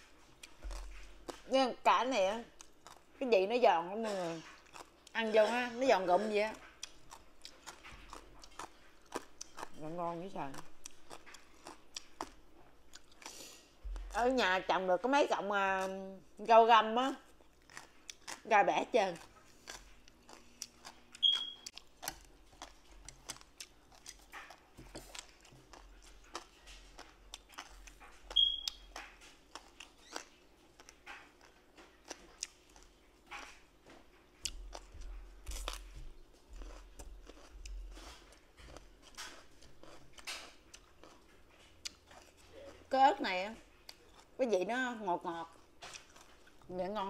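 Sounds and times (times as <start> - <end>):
chewing crunchy vegetables: 0.0 - 47.0
short high beeps: 21.2 - 21.6, 28.4 - 28.8.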